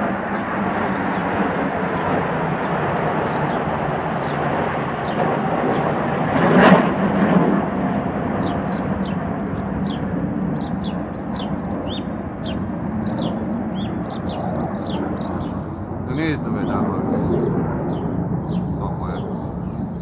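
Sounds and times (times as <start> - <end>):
birds chirping: 0.0 - 20.0
jet engines roaring overhead: 0.0 - 20.0.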